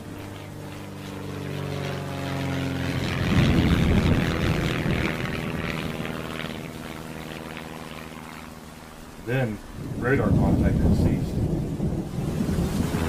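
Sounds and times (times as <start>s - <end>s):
propeller aircraft engine droning: 0.0s - 13.0s.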